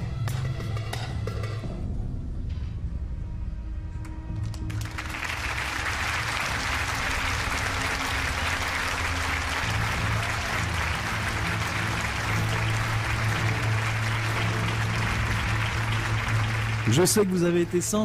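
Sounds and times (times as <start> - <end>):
music playing: 0.0 - 18.0
audience applauding: 4.5 - 18.0.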